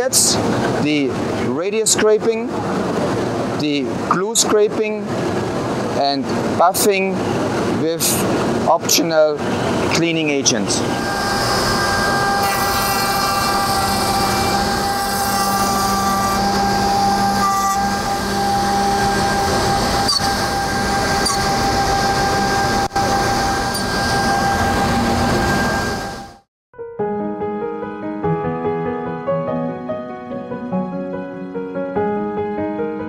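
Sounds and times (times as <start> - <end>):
machine motors whirring: 10.8 - 26.4.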